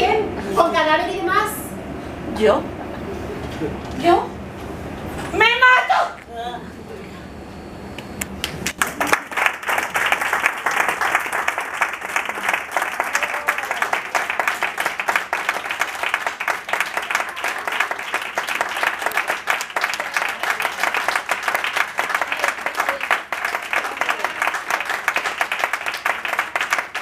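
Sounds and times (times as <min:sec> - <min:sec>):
audience applause: 0:08.4 - 0:27.0.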